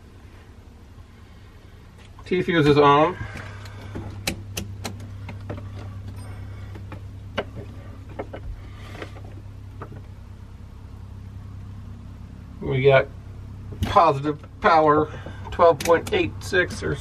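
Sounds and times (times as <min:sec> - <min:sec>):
steady low hum: 0:00.0 - 0:17.0
clicks and taps of probes: 0:03.4 - 0:08.5.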